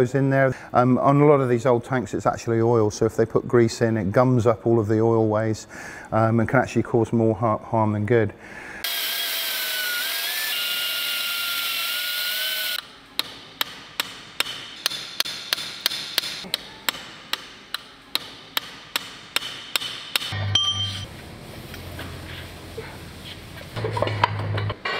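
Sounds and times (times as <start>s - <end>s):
hammer striking steel punch: 13.2s - 21.0s.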